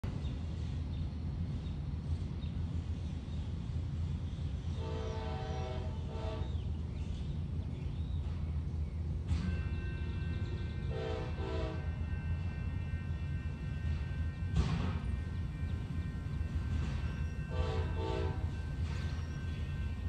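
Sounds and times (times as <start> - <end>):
distant locomotive air horn: 4.7 - 6.7, 10.0 - 12.5, 17.4 - 19.2.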